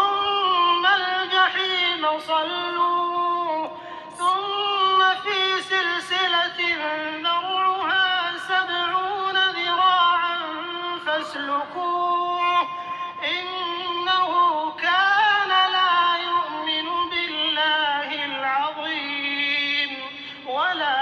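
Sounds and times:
person reciting melodically: 0.0s - 21.0s
person breathing: 3.7s - 4.2s, 12.8s - 13.2s.

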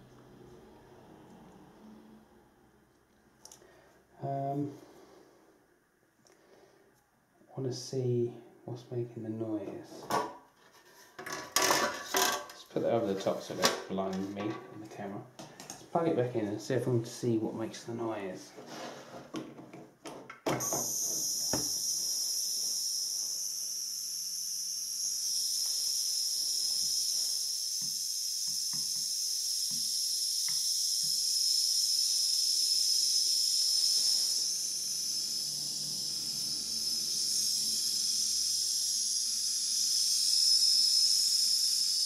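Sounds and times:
power supply high-pitched whine: 20.5s - 42.0s.

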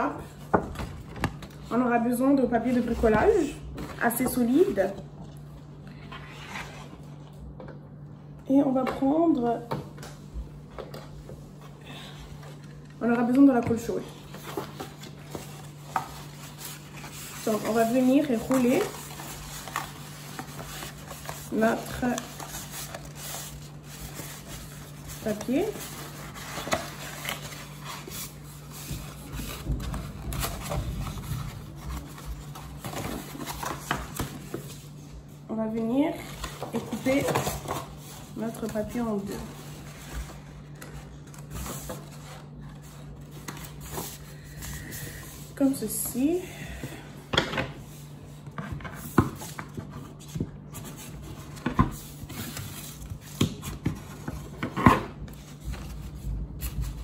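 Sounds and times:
paper rustling and crinkling: 13.6s - 35.4s.

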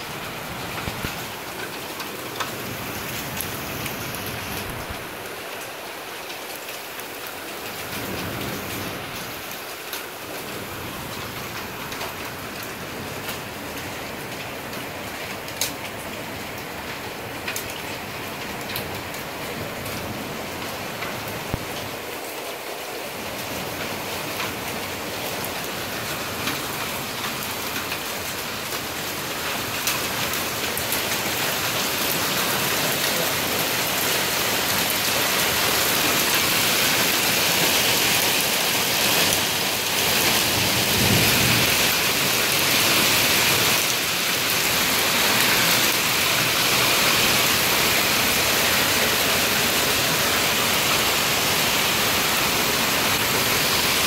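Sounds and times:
heavy rain and hail pelting: 0.0s - 54.0s
low rumble of thunder: 40.5s - 42.2s.

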